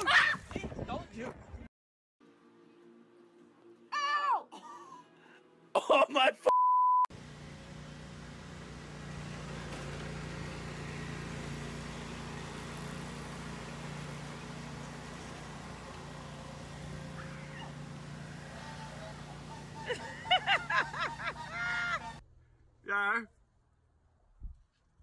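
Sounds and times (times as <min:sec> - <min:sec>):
low mechanical hum: 0:07.1 - 0:22.8.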